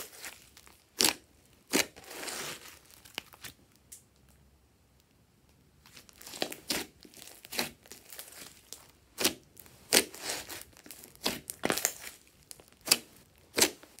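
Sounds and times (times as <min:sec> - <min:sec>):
slime squishing and popping: 0:06.0 - 0:14.0.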